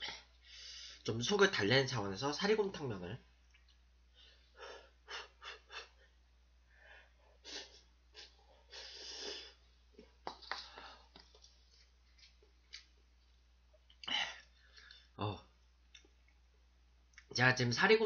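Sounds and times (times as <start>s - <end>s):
quiet breaths: 0.0s - 1.1s, 4.0s - 12.5s, 13.9s - 15.6s
person slurping noodles: 8.7s - 9.6s.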